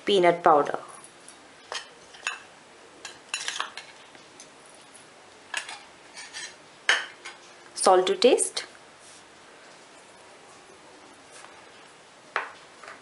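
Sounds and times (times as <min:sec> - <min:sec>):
spoon clinking and scraping steel bowl: 0:05.6 - 0:06.6.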